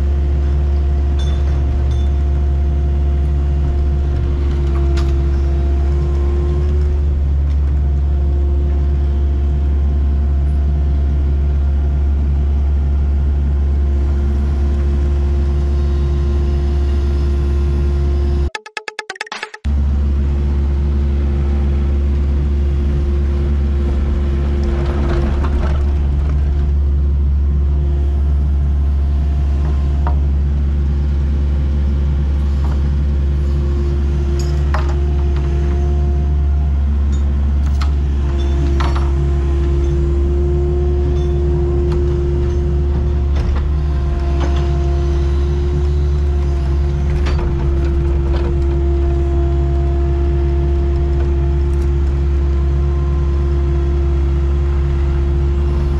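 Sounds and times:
excavator diesel engine: 0:00.0 - 0:18.5, 0:19.7 - 0:55.9.

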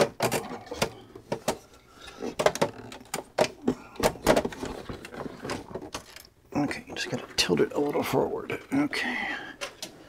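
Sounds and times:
sharp plastic clicks and knocks: 0:02.4 - 0:06.3.

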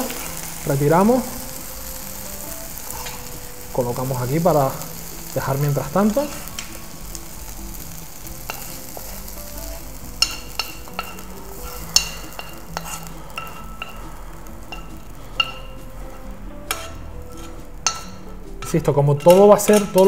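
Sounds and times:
faint sizzle from pan: 0:00.0 - 0:20.0
metal spoon clinking against pan: 0:08.4 - 0:09.0, 0:10.2 - 0:15.8, 0:16.7 - 0:20.0.

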